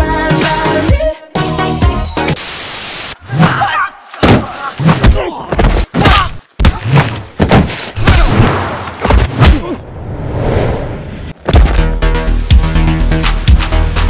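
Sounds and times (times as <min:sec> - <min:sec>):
heavy thuds and impacts: 0:04.2 - 0:09.7.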